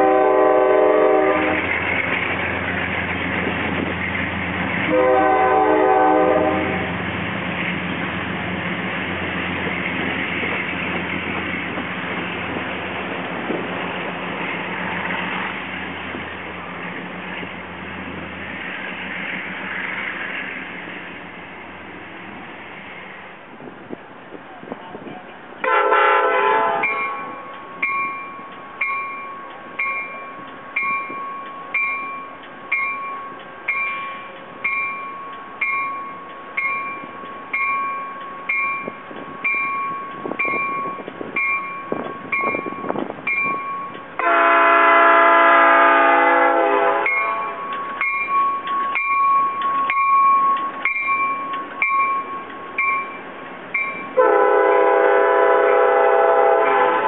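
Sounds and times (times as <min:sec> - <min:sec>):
train horn blast: 0:00.0 - 0:01.8, 0:04.8 - 0:07.0, 0:25.6 - 0:27.4, 0:44.2 - 0:47.6, 0:54.2 - 0:57.0
train wheels rumbling: 0:00.0 - 0:57.0
bell dinging: 0:47.1 - 0:53.2.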